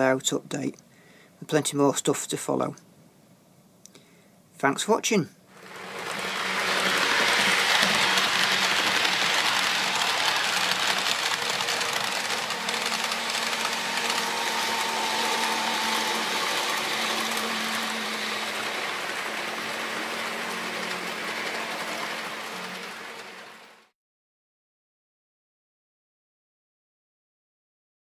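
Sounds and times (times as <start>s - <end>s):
model train whirring on track: 5.5s - 23.9s.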